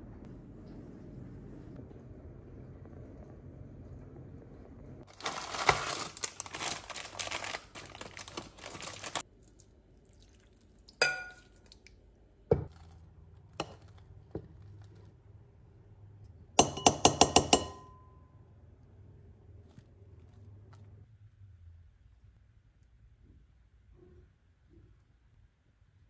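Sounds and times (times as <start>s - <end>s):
crackling rustle: 5.0s - 9.6s
spatula tapping glass bowl: 16.6s - 18.2s.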